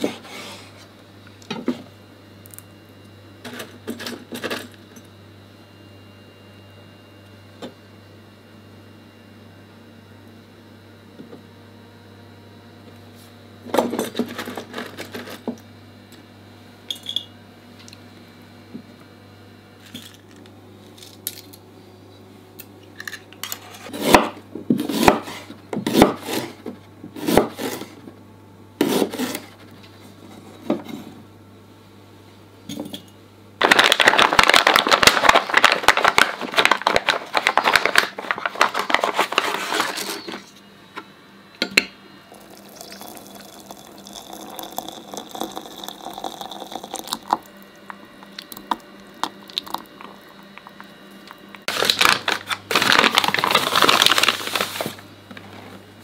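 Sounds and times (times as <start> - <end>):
plastic packet crinkling and tearing: 33.6 - 40.1, 51.7 - 55.0.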